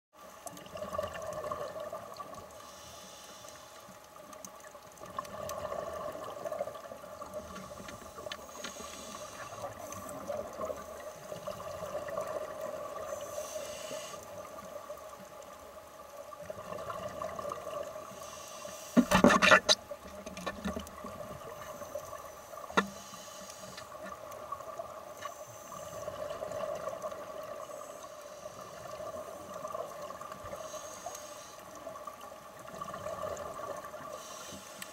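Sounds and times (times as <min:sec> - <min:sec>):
muffled underwater hum: 0:07.2 - 0:12.0.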